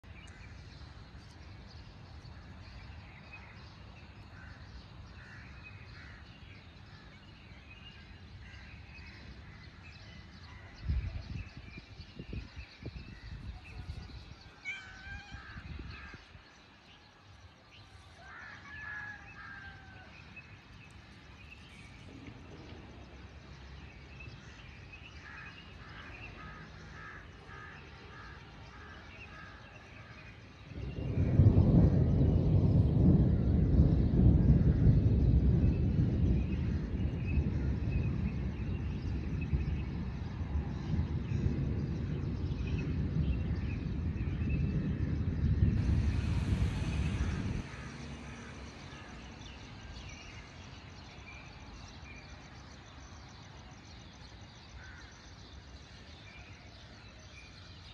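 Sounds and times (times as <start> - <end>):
birds calling: 12.2 - 17.1
steady low rumble: 30.7 - 50.3.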